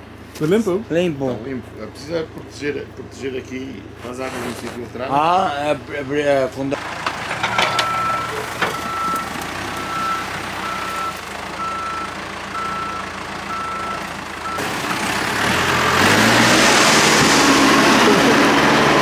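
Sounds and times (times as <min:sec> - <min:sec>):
diesel engine idling: 0:04.8 - 0:16.6
reversing alarm beeping: 0:07.4 - 0:14.6.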